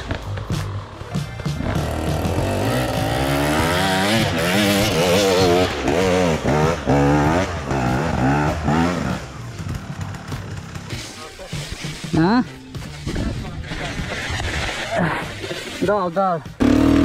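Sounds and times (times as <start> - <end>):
dirt bike engine revving: 0.0 - 11.0, 16.6 - 17.0.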